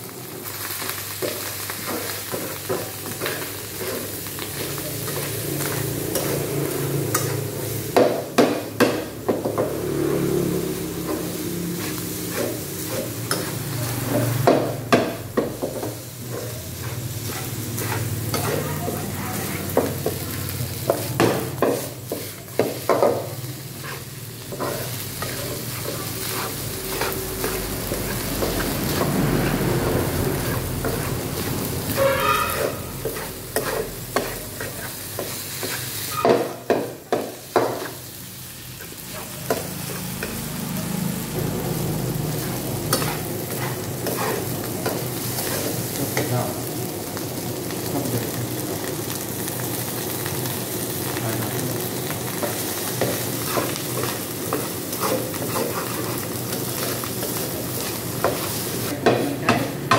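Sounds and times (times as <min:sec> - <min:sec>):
rice sizzling in a frying pan: 0:00.0 - 0:59.9
metal turner scraping a pan: 0:11.0 - 0:14.4, 0:16.2 - 0:19.5, 0:23.8 - 0:34.9, 0:35.5 - 0:36.6, 0:42.3 - 0:45.8, 0:52.9 - 0:58.6.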